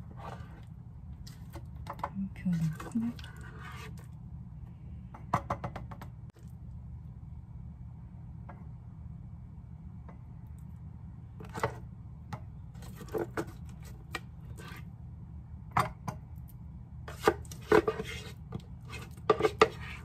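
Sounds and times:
spatula scraping a pan: 0.0s - 0.7s, 2.5s - 4.1s, 12.8s - 14.9s, 17.1s - 20.0s
steady low hum: 0.0s - 20.0s.

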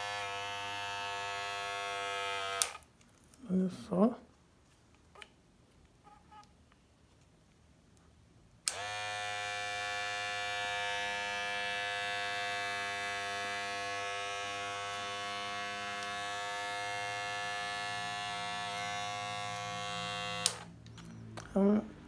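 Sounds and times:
hair clipper buzzing: 0.0s - 2.9s, 8.7s - 20.8s
hair clipper switch click: 2.5s - 2.8s, 8.6s - 9.0s, 15.9s - 16.2s, 19.5s - 20.7s.

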